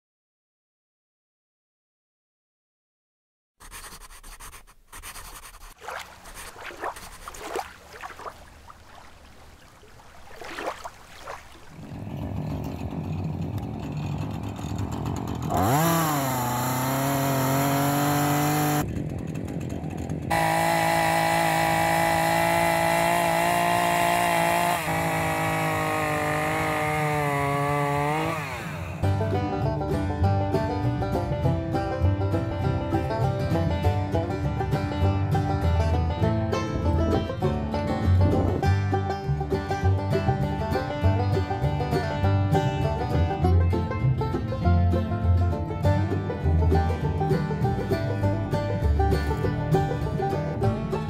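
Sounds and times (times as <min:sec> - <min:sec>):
pen scratching: 0:03.6 - 0:07.3
chainsaw revving: 0:11.8 - 0:29.2.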